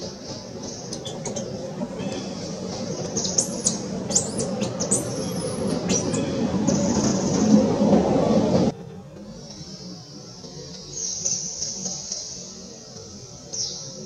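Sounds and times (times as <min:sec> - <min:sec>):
small birds chirping: 0:00.0 - 0:07.6, 0:13.4 - 0:14.0
steady low background noise: 0:00.0 - 0:14.0.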